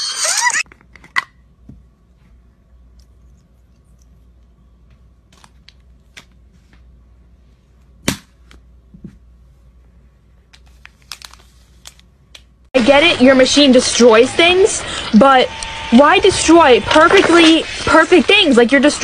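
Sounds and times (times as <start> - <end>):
low steady hum: 0.7 - 19.0.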